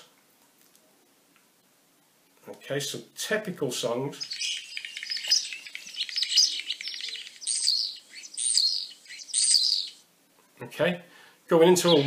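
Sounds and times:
starling song clicks and rattles: 4.2s - 9.9s.

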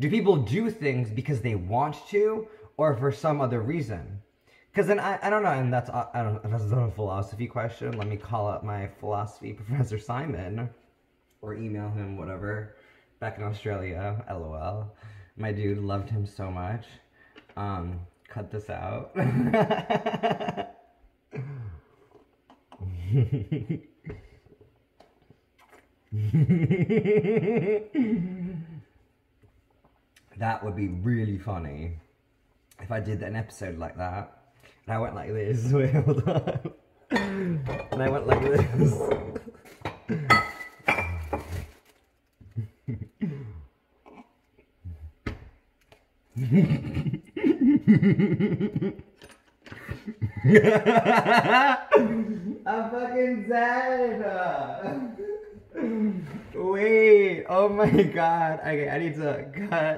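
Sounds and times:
man laughing hard: 26.2s - 28.5s, 49.9s - 52.7s, 54.6s - 56.3s.

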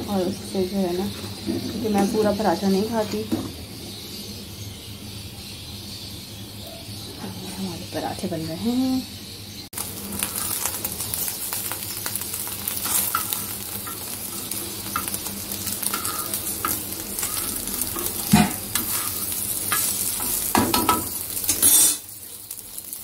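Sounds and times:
food sizzling on iron pan: 0.0s - 23.0s
spatula scraping pan: 12.1s - 22.1s.

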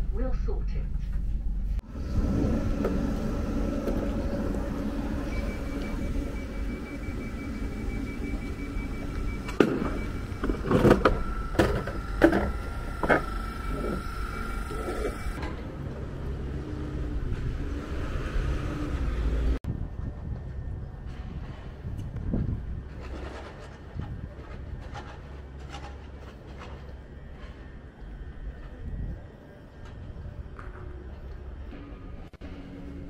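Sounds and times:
electric train humming: 1.5s - 19.6s, 26.9s - 33.0s.

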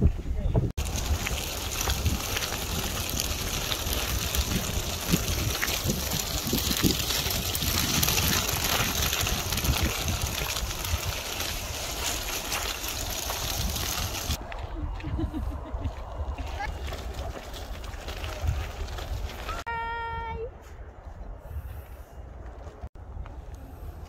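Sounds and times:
trickling water: 0.8s - 14.4s.

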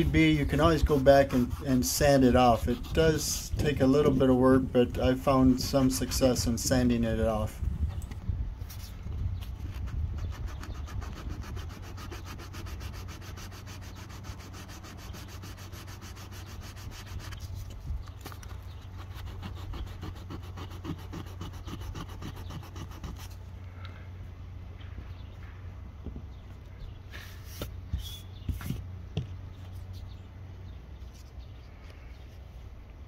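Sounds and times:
sandpaper rubbing by hand: 0.0s - 3.9s, 5.4s - 6.8s, 8.6s - 17.8s, 18.4s - 23.4s.

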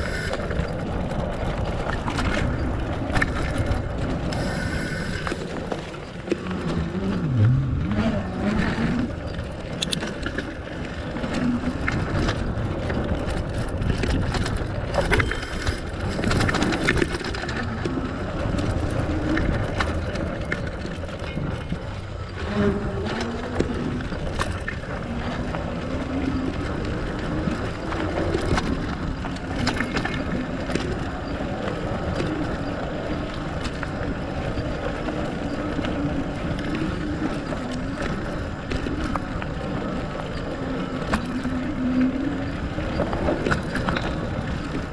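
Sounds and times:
bike rattling over bumps: 0.0s - 44.9s
bike tyres rolling on dirt: 0.0s - 44.9s
drone rising and falling in pitch: 6.5s - 9.1s.

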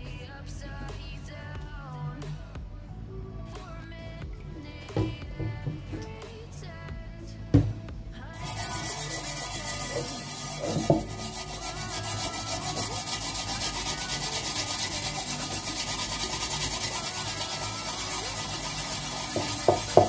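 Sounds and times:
steel wool scrubbing metal pan: 8.4s - 20.0s.

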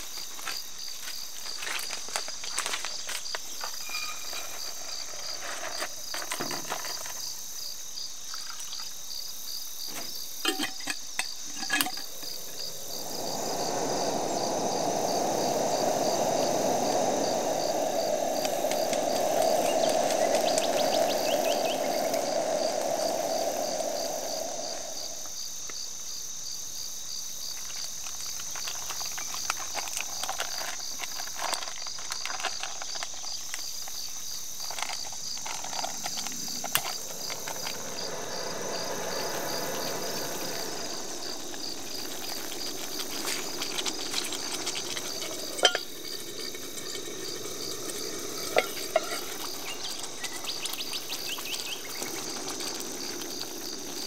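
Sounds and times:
crickets chirping: 0.0s - 54.0s
loud rushing noise: 12.1s - 25.6s, 36.3s - 43.6s.

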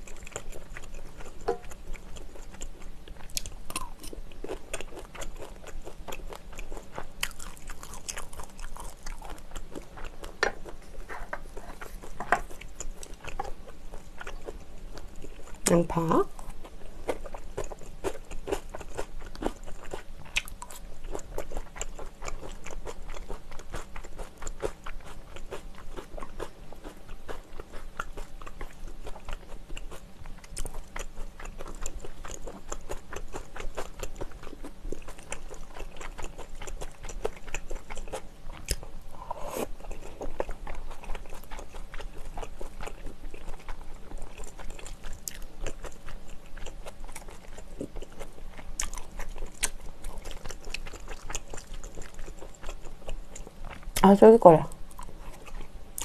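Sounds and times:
wet crunching and smacking chewing: 0.0s - 56.0s.

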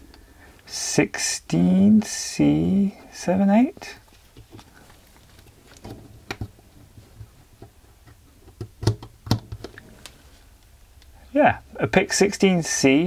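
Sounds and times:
fingers clicking and tapping circuit board: 8.6s - 9.6s.

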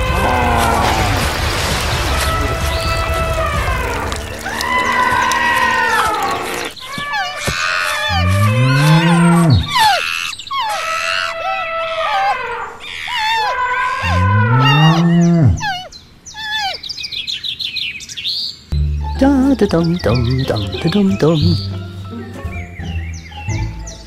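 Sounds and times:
birds chirping: 0.2s - 24.0s
cow mooing: 4.3s - 6.7s, 8.1s - 9.7s, 14.0s - 15.6s.

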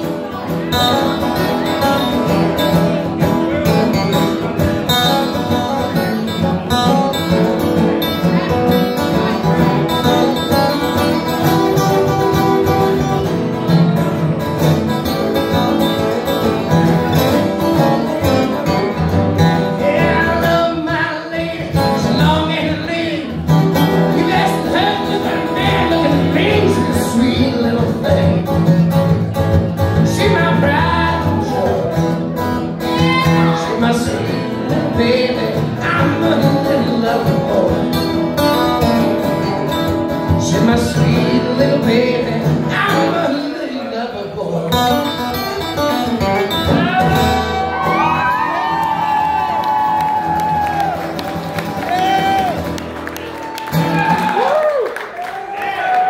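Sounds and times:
acoustic guitars strummed: 0.0s - 54.4s
man singing into a microphone: 19.6s - 29.1s, 29.9s - 39.5s, 40.2s - 45.2s.

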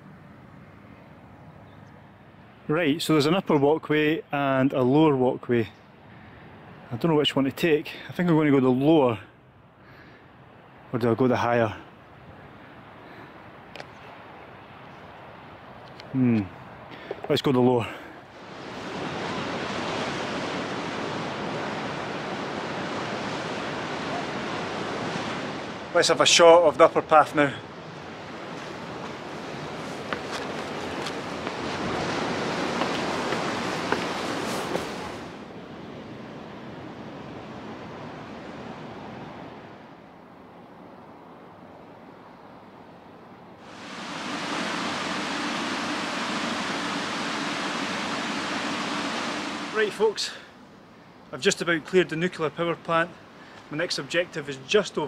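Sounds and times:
steady rushing hiss: 17.1s - 35.5s, 43.6s - 51.8s
sea waves breaking on rocks: 18.4s - 26.3s, 27.9s - 35.4s, 43.7s - 50.3s
low plant hum: 43.6s - 50.6s.

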